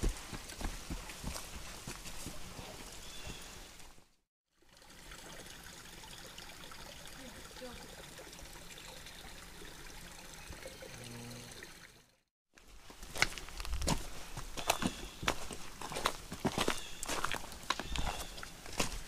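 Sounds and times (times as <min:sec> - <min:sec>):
footsteps on loose stones: 0:00.0 - 0:03.5, 0:12.6 - 0:19.0
creek trickling: 0:00.0 - 0:19.0.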